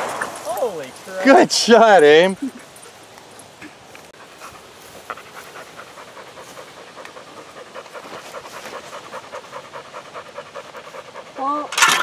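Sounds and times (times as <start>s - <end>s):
dog panting rapidly: 4.2s - 11.7s.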